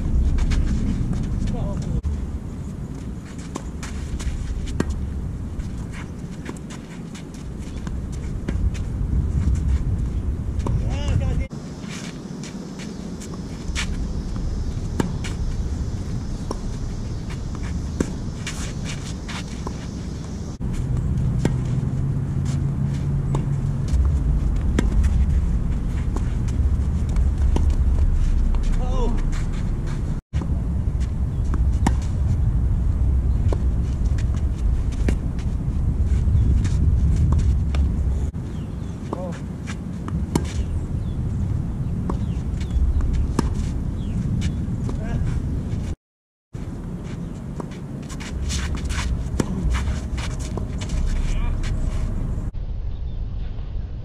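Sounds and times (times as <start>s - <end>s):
steady low rumble: 0.0s - 46.0s, 46.6s - 54.0s
shoe scuffs on court: 3.0s - 5.0s, 5.6s - 9.9s, 10.6s - 14.1s, 16.4s - 21.8s, 27.1s - 30.5s, 39.0s - 40.7s, 42.1s - 46.0s, 46.6s - 52.3s
tennis ball hitting rackets: 3.0s - 8.9s, 11.9s - 15.6s, 16.3s - 30.1s, 31.5s - 32.1s, 38.8s - 41.2s, 42.0s - 45.1s, 47.0s - 52.1s.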